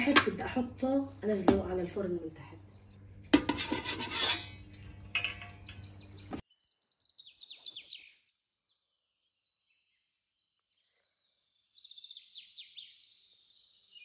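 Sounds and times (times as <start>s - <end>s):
metal spatula scraping steel plate: 3.3s - 5.9s
faint bird chirps: 5.5s - 14.0s.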